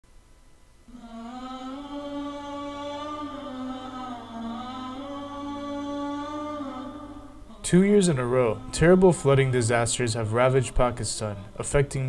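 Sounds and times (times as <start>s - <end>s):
faint low hum: 0.1s - 12.0s
person chanting a melody: 0.9s - 12.0s.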